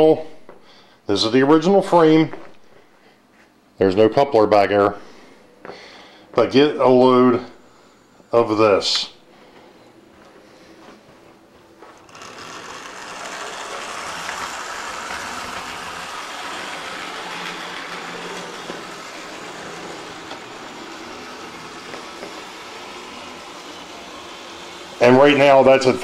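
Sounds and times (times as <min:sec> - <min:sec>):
model locomotive motor growling: 0:11.9 - 0:26.0.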